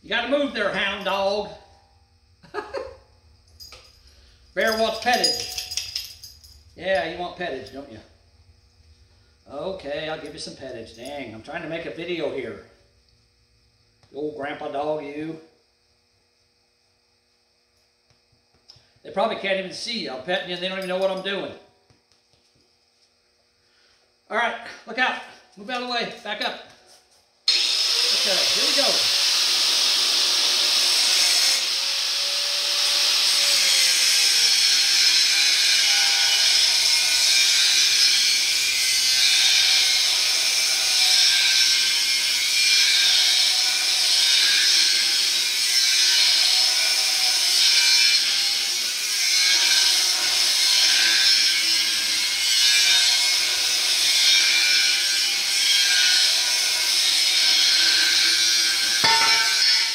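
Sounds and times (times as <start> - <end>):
angle grinder cutting steel: 27.5 - 59.9.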